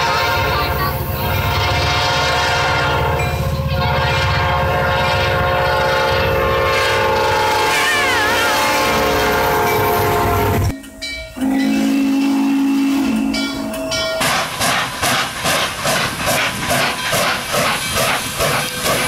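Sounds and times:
locomotive air horn blasts: 0.0 - 10.7, 11.3 - 14.0.

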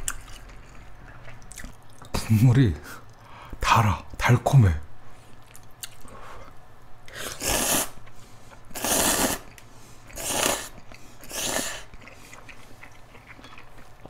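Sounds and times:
quiet chewing: 0.0 - 2.2, 5.2 - 6.6, 9.4 - 14.0
person slurping noodles: 7.1 - 8.0, 8.7 - 12.2.

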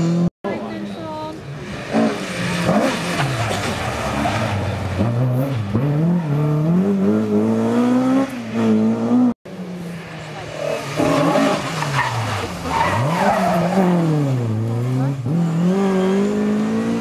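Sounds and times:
rally car engine revving: 1.4 - 17.0.

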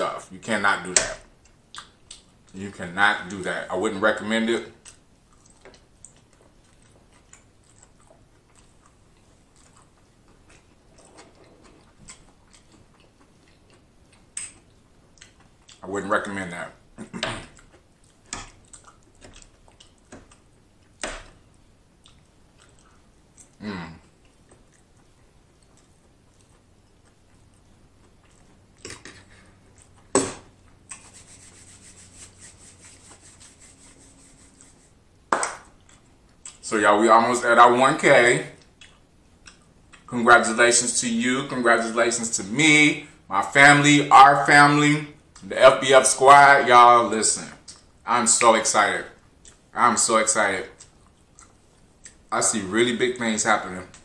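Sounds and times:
person chewing noodles: 4.8 - 15.8, 17.5 - 21.0, 21.9 - 30.1, 38.6 - 40.1, 49.3 - 49.7, 50.8 - 52.3
hands rubbing together: 30.9 - 35.0.

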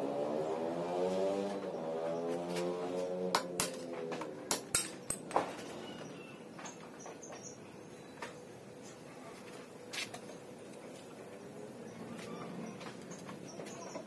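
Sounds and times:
metal tools clinking on metal: 3.6 - 5.8.

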